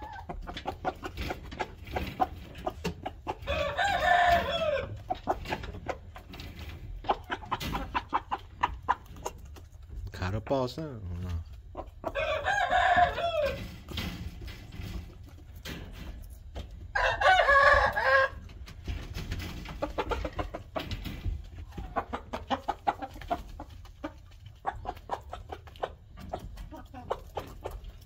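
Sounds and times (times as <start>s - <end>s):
soft clucks: 0.0s - 3.5s, 4.6s - 12.2s, 19.7s - 28.0s
rooster crowing: 3.4s - 5.0s, 12.1s - 13.6s, 16.9s - 18.4s.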